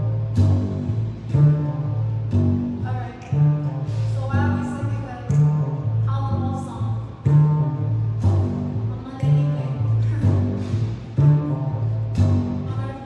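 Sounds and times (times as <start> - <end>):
double bass played pizzicato: 0.0 - 13.0.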